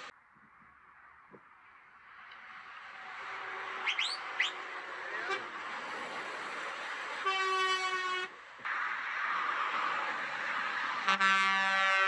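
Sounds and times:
highway traffic hiss: 0.8s - 12.0s
lorry air horn: 7.2s - 8.3s.

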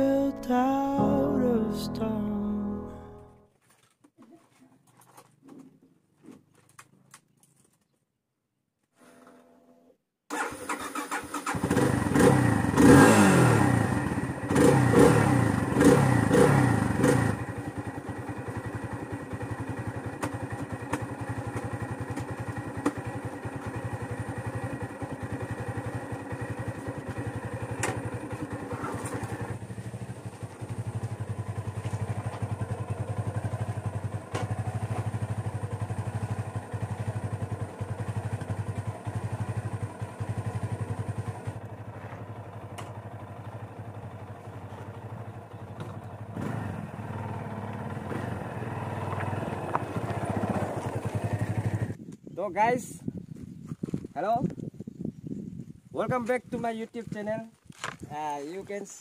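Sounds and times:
motorcycle engine revving and idling: 10.4s - 52.1s.

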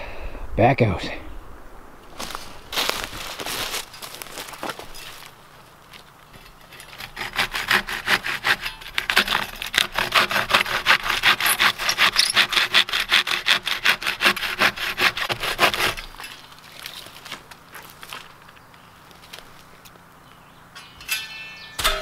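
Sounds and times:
hand saw cutting log: 6.4s - 16.4s.

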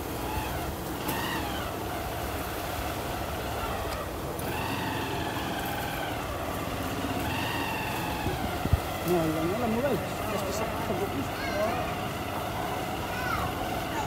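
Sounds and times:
low street rumble: 0.0s - 14.0s
faint indistinct voices: 7.2s - 14.0s.

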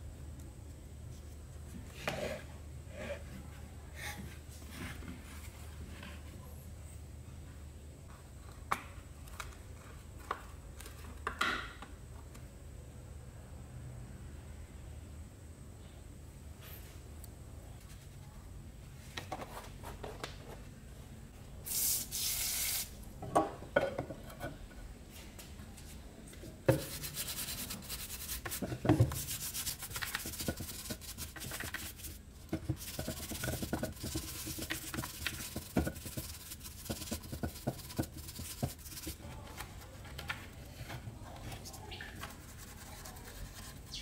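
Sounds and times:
short hiss: 21.7s - 23.0s
brush scrubbing plastic housing: 26.7s - 39.3s.

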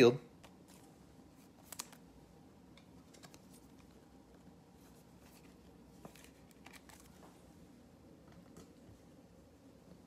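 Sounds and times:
trading cards clicking and rustling: 0.4s - 2.0s, 2.8s - 4.0s, 5.2s - 7.2s.

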